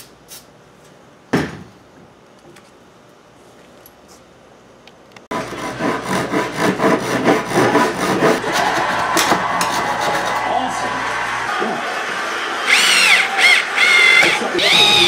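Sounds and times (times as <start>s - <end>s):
handsaw cutting wood: 5.3s - 10.6s, 12.7s - 15.0s.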